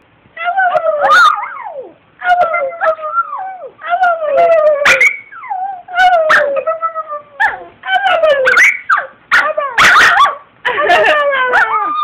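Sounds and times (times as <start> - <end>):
dog howling with sharp yips: 4.4 - 6.6.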